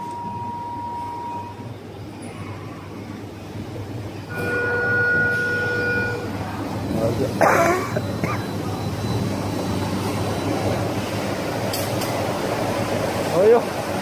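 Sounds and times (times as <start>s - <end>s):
machine rumble with high whine: 0.0s - 14.0s
steady multi-pitch tone: 4.2s - 11.7s.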